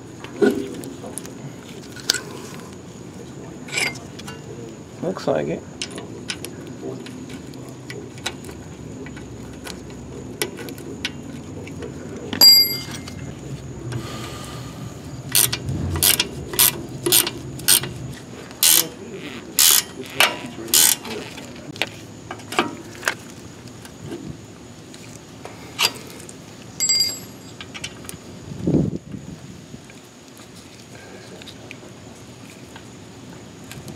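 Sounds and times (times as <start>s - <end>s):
ringing metal clink: 12.4s - 13.3s, 26.8s - 27.6s
wrench clicking on metal: 15.3s - 17.9s, 18.6s - 18.9s, 19.6s - 21.1s.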